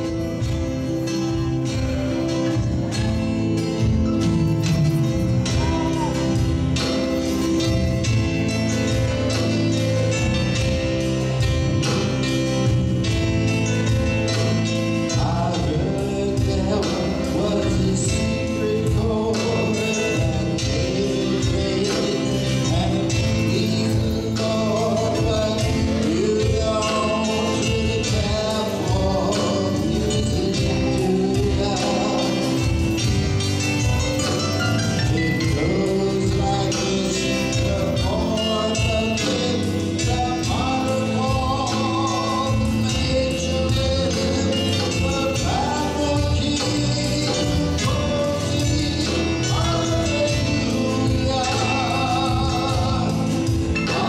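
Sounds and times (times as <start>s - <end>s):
live band playing: 0.0s - 54.0s
men singing: 15.1s - 32.9s, 35.1s - 54.0s.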